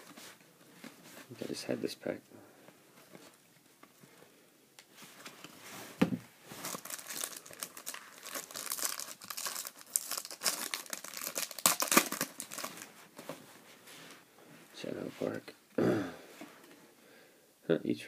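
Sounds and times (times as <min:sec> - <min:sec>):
foil wrapper crinkling and tearing: 0:06.6 - 0:12.9.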